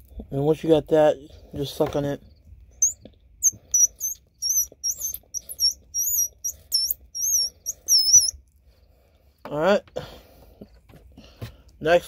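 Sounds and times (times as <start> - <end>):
high wavering squeaks: 2.7 - 8.4.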